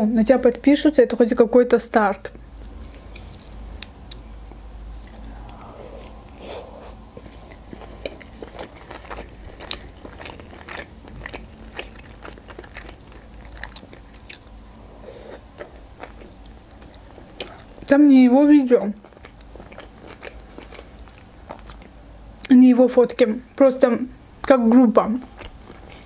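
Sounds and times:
chewing with mouth clicks: 2.6 - 18.0, 18.8 - 22.0, 25.2 - 26.0.

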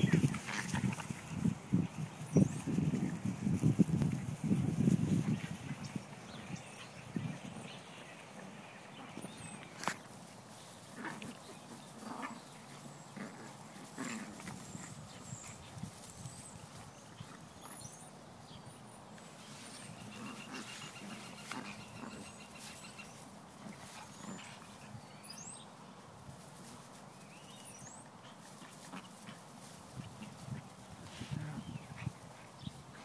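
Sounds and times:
dogs scuffling: 0.0 - 17.9, 19.2 - 24.8
dogs growling: 10.9 - 15.5, 20.0 - 22.7, 23.6 - 24.8.

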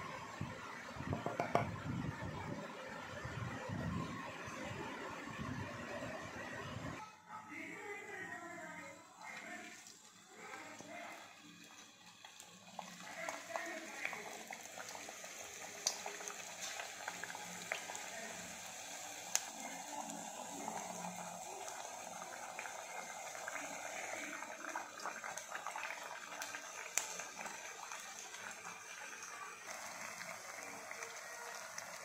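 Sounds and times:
dough sizzling in hot oil: 9.2 - 32.0.

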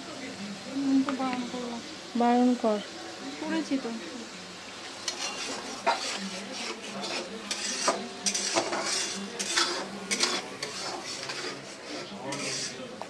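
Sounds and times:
metal spatula scraping a pan: 5.0 - 12.9.

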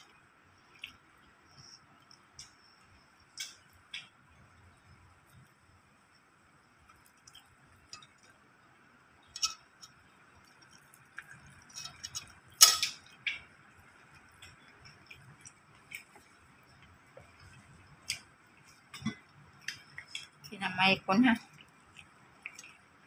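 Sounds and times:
tableware clinking: 9.4 - 9.6, 11.7 - 13.1.

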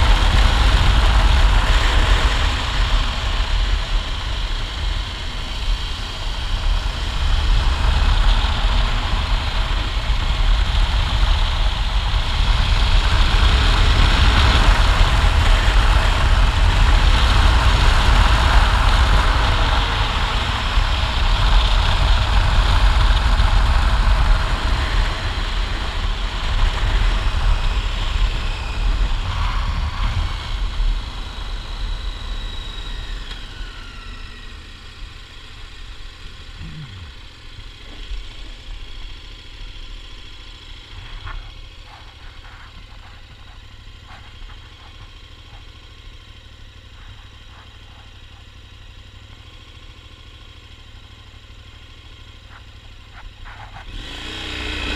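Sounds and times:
wind noise: 0.0 - 33.3
motorcycle engine running: 0.0 - 54.9.

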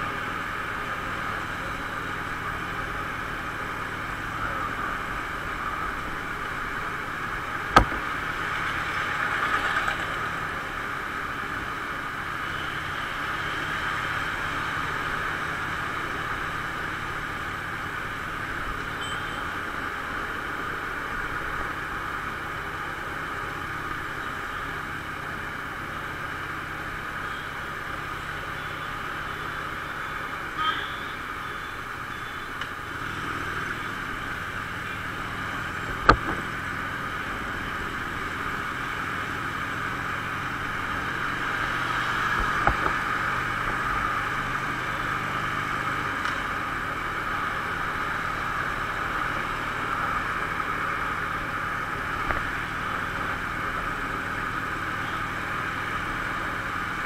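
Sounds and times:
motorcycle engine: 0.0 - 20.8, 32.7 - 57.0
wind and road noise: 0.0 - 57.0.

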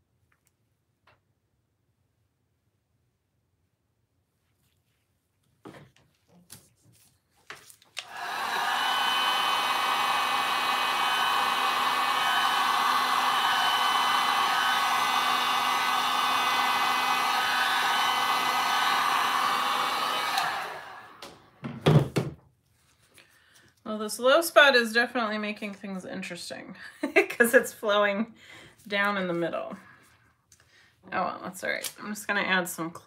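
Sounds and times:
heat gun blowing with fan whine: 8.0 - 21.5.

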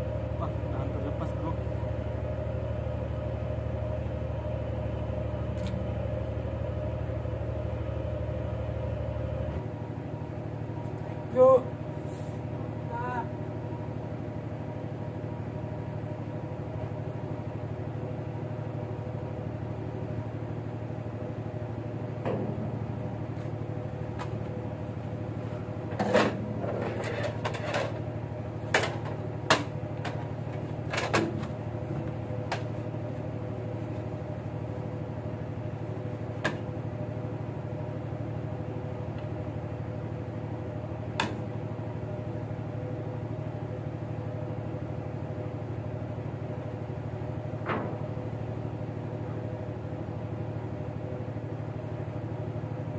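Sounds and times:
boat engine droning: 0.0 - 52.9
sharp knocks and clatter: 25.9 - 31.6, 47.6 - 48.2.

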